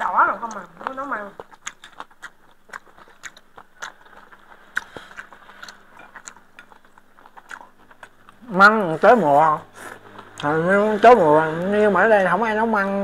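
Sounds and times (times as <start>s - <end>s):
chewing: 0.0s - 10.6s.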